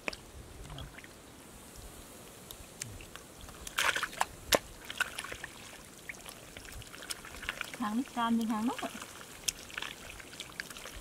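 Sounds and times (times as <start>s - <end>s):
hands squelching wet mud: 2.9s - 11.0s.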